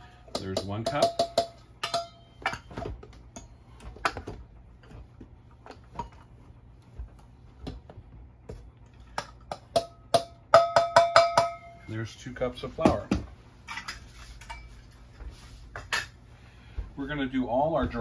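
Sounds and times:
metal bowl ringing: 0.3s - 2.7s, 9.7s - 11.9s
metal cup clinking against bowl: 0.3s - 2.7s.

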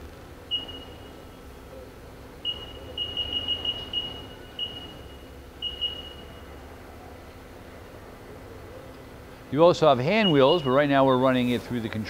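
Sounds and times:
faint steady hum: 0.0s - 12.0s
keypad beeping: 0.5s - 1.2s, 2.4s - 6.5s.

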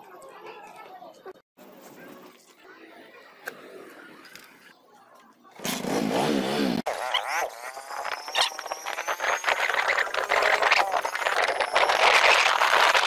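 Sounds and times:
wind rushing over microphone: 8.2s - 13.0s.

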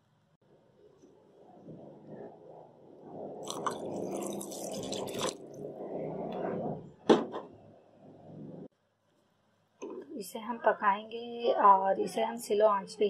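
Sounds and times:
milk pouring into pan: 3.4s - 5.6s.

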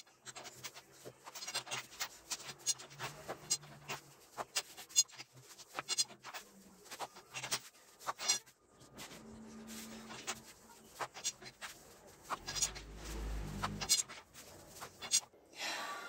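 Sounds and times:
low rumble of dough rolling: 8.7s - 15.0s.

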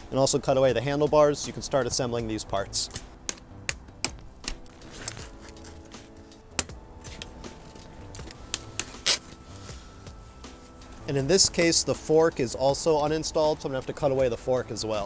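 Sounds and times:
zip ties snipped with cutters: 2.9s - 9.4s.

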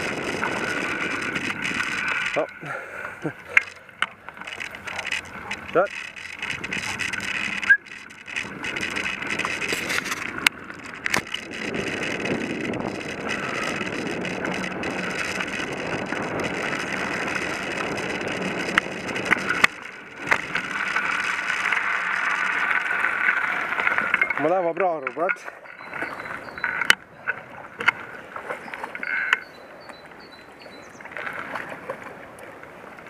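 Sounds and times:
bicycle tyres on gravel: 0.0s - 33.0s
bike rattling: 0.0s - 33.0s
sharp clicks or knocks: 3.5s - 13.4s.

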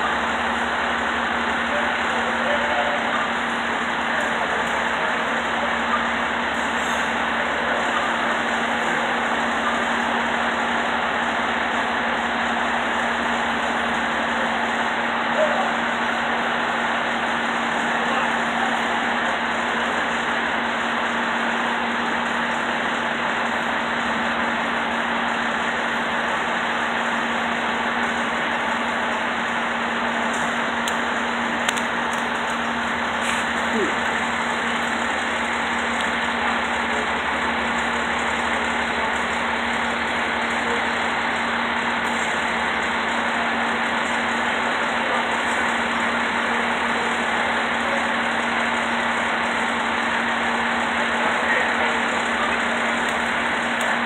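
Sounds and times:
diesel engine idling: 0.0s - 54.0s.

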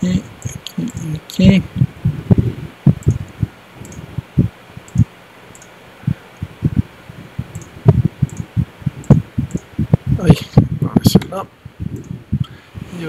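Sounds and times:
computer mouse clicking: 2.9s - 4.1s, 4.8s - 5.8s, 7.5s - 9.7s.

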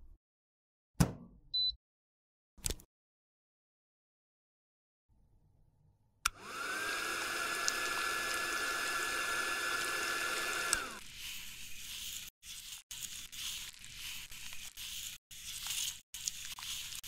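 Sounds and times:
electric motor whine: 6.3s - 11.0s
rustling: 10.8s - 17.0s.

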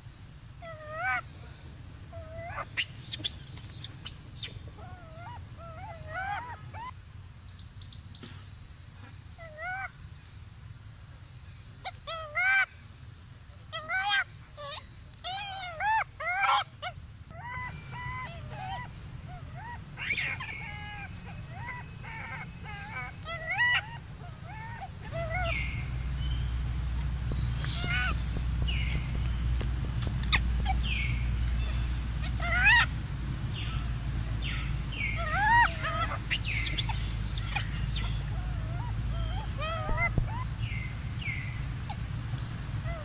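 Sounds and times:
low steady hum: 0.0s - 43.0s
baby monkey whimpering: 0.6s - 1.2s, 2.1s - 3.9s, 4.8s - 7.0s, 9.4s - 9.9s, 11.8s - 12.7s, 13.7s - 26.0s, 27.6s - 29.0s, 30.0s - 32.9s, 35.1s - 40.8s, 42.8s - 43.0s.

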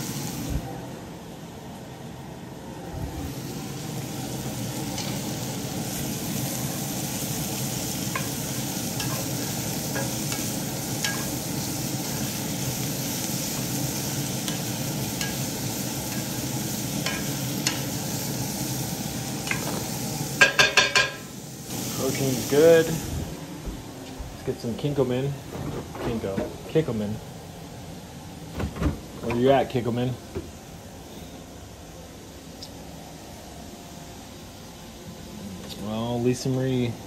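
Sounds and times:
meat and vegetables sizzling in skillet: 0.0s - 0.7s, 3.1s - 23.6s.

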